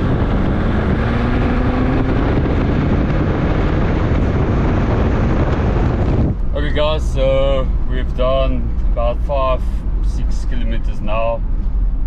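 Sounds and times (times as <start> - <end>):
rising engine tone: 0.0 - 6.4
wind and road noise: 0.0 - 12.0.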